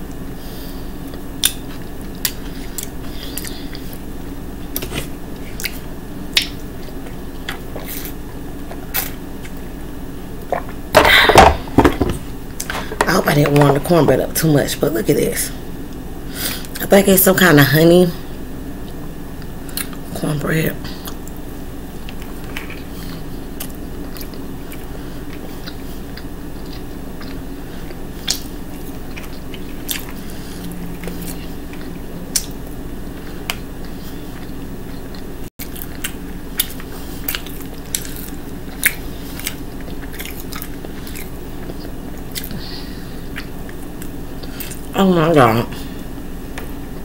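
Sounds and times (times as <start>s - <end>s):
steady low hum: 0.0s - 47.0s
person chewing and lip smacking: 1.0s - 4.0s, 4.7s - 9.7s, 18.8s - 20.0s, 22.0s - 42.6s, 43.3s - 44.9s.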